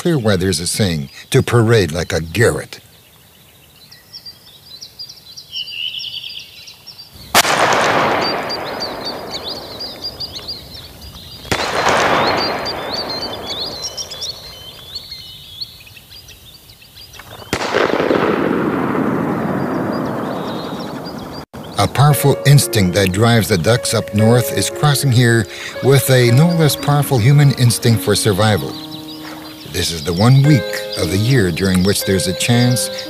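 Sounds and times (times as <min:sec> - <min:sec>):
birds chirping: 0:00.0 - 0:33.0
shotgun shots with echo: 0:07.3 - 0:10.6, 0:11.4 - 0:14.7, 0:17.2 - 0:21.4.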